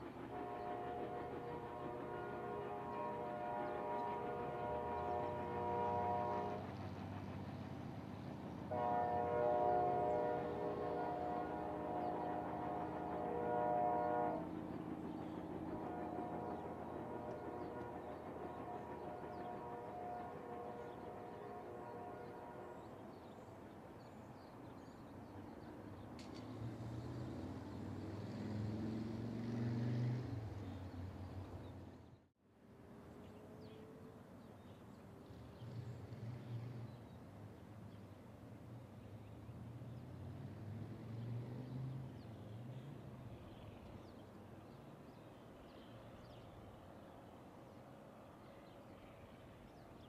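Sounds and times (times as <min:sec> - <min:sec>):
train horn: 0:00.0 - 0:07.0, 0:08.6 - 0:23.5
diesel locomotive engine drone: 0:00.0 - 0:50.0.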